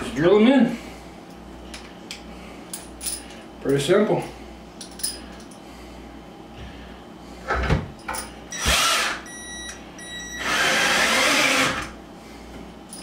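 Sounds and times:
power drill driving screws: 0:08.6 - 0:09.2, 0:10.4 - 0:11.9.

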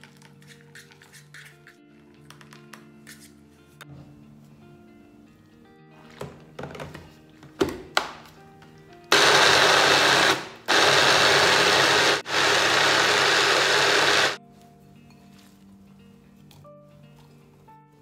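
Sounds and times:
blender motor grinding: 0:09.1 - 0:14.4.

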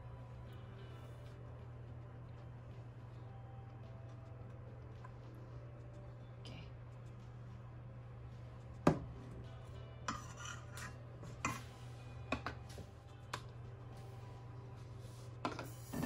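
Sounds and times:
steady low hum: 0:00.0 - 0:16.0
dishes and utensils clattering: 0:10.1 - 0:12.6.

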